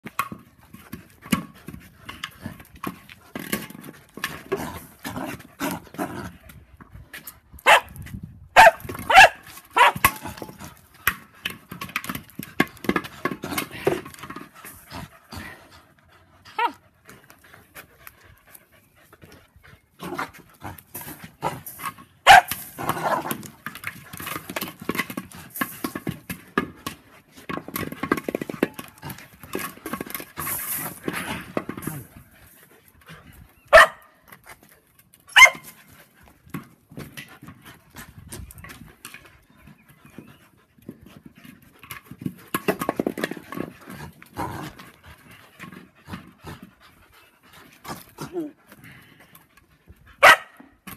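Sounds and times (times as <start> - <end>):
dogs barking: 8.6 - 10.0, 33.7 - 34.1, 50.2 - 50.6.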